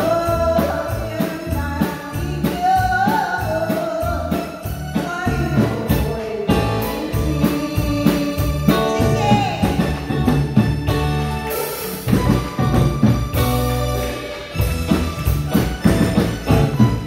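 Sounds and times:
woman singing into a microphone: 0:00.0 - 0:10.1
live band playing: 0:00.0 - 0:17.0.

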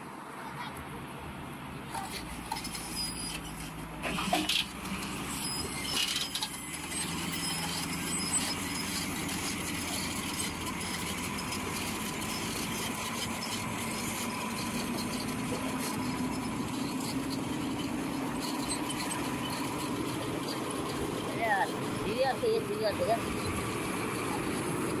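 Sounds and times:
heavy diesel engines running: 0:00.4 - 0:25.0.

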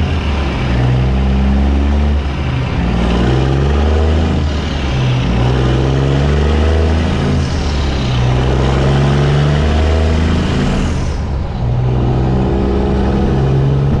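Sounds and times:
truck diesel engine running: 0:00.0 - 0:14.0
rushing air noise: 0:10.0 - 0:14.0.

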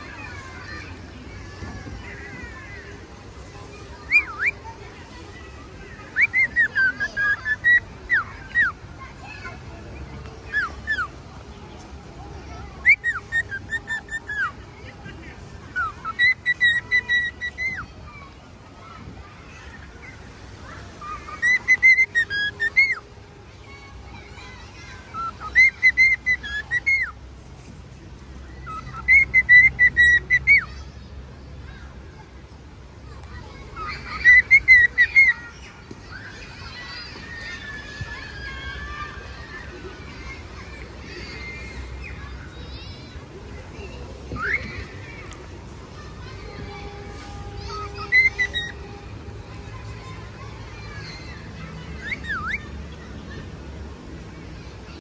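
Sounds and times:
cockatiel whistling: 0:04.1 - 0:04.6, 0:06.1 - 0:08.7, 0:12.8 - 0:14.5, 0:15.8 - 0:17.8, 0:21.0 - 0:23.0, 0:25.1 - 0:27.1, 0:28.6 - 0:30.7, 0:33.8 - 0:35.4, 0:47.7 - 0:48.7, 0:52.0 - 0:52.6.

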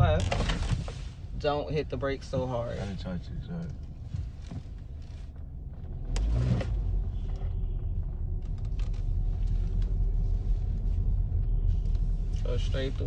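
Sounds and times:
car cabin rumble: 0:00.0 - 0:13.0.

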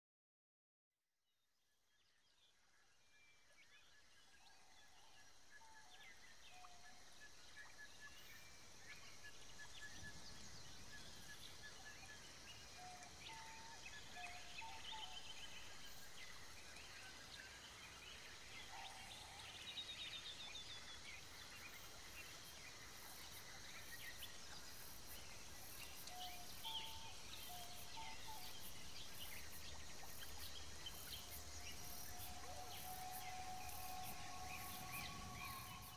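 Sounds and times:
faint garden ambience: 0:01.8 - 0:35.9
insect chirping high ticks: 0:21.9 - 0:35.9.

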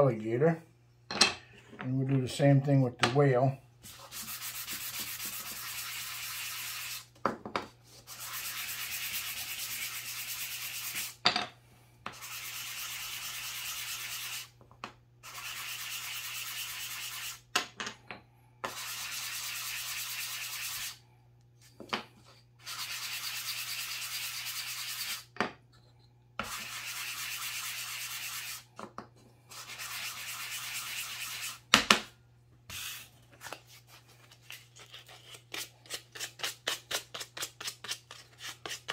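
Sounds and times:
wood rubbing on sandpaper: 0:03.8 - 0:07.1, 0:07.9 - 0:11.2, 0:12.1 - 0:14.5, 0:15.2 - 0:17.4, 0:18.7 - 0:21.0, 0:22.6 - 0:25.3, 0:26.4 - 0:28.7, 0:29.5 - 0:31.6, 0:32.7 - 0:33.1.

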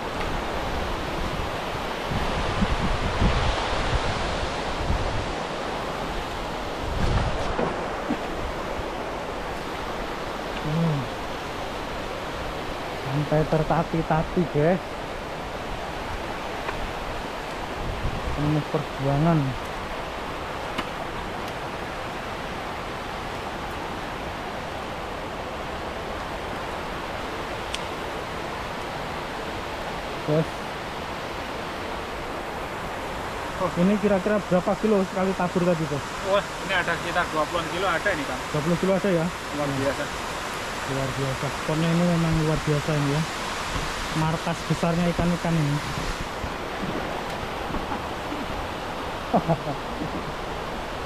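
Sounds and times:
wind buffeting microphone: 0:00.0 - 0:10.5, 0:15.5 - 0:18.6, 0:45.6 - 0:51.0
water rushing over a weir: 0:00.0 - 0:51.0.

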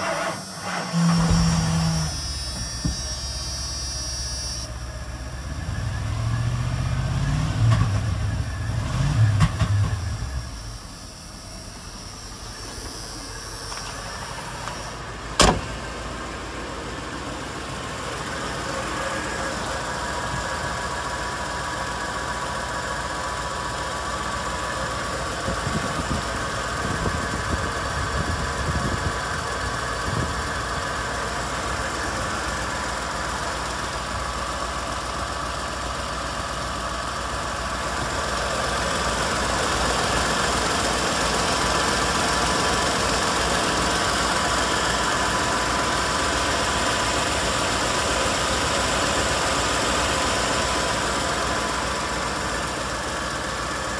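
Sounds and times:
truck engine idling: 0:00.0 - 0:53.9
sharp slam: 0:15.4 - 0:15.7.

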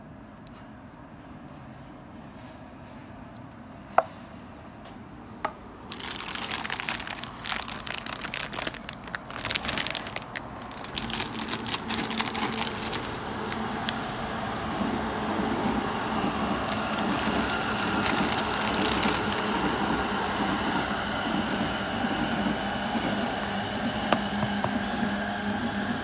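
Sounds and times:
plastic packaging crinkling: 0:05.8 - 0:14.2, 0:15.2 - 0:15.8, 0:16.6 - 0:19.9
scissors cutting plastic: 0:05.9 - 0:14.2, 0:16.6 - 0:19.8.

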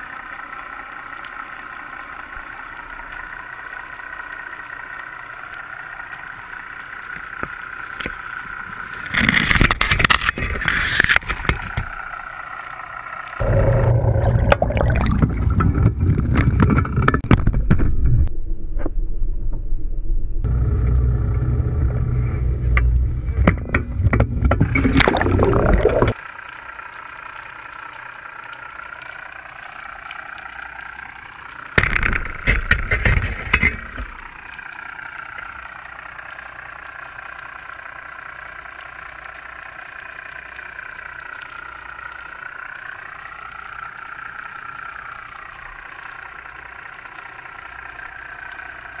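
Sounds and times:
underwater boat motor whine: 0:00.0 - 0:18.3, 0:20.3 - 0:49.0
rumbling water and wind: 0:00.0 - 0:18.4, 0:20.4 - 0:26.3.

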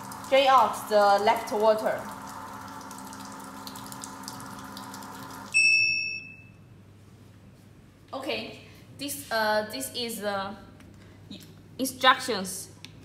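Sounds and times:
drain pump running: 0:00.0 - 0:05.6
high electronic beep: 0:05.6 - 0:06.5.

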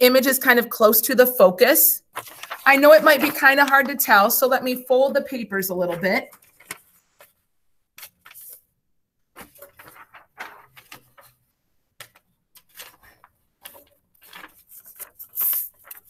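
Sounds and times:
paper crinkling: 0:02.0 - 0:04.5, 0:05.2 - 0:08.7, 0:09.3 - 0:16.0.

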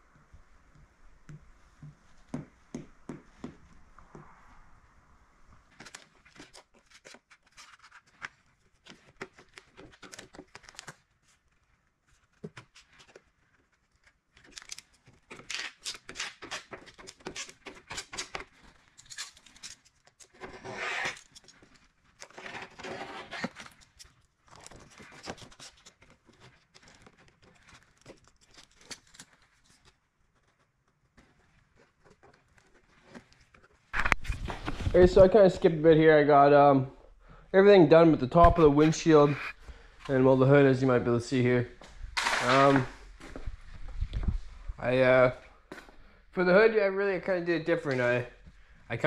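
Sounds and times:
film crinkling and peeling: 0:05.7 - 0:35.2.

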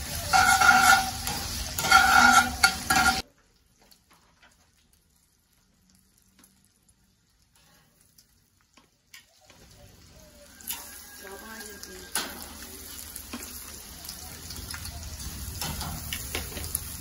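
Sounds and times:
bacon sizzling in skillet: 0:00.0 - 0:17.0
utensil stirring in skillet: 0:00.0 - 0:17.0
faint crackles: 0:03.2 - 0:11.0.

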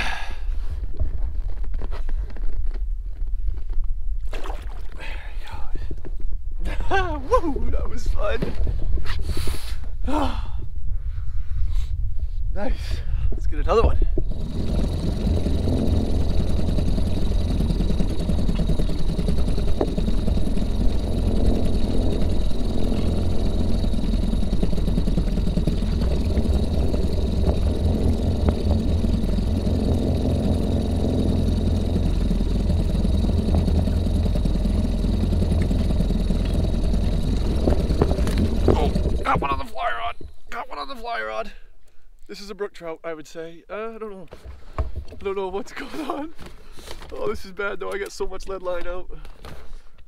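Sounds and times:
outboard motor droning: 0:13.5 - 0:41.2.

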